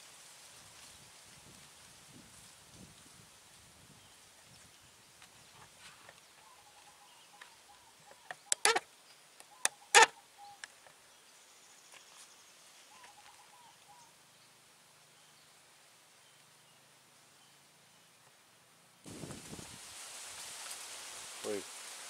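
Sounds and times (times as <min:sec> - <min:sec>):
sharp clicks and knocks: 0:08.2 - 0:08.8.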